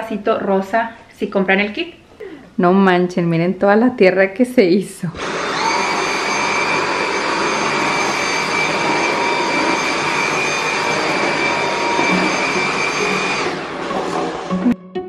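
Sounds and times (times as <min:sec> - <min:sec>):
vacuum cleaner running: 0:05.1 - 0:14.8.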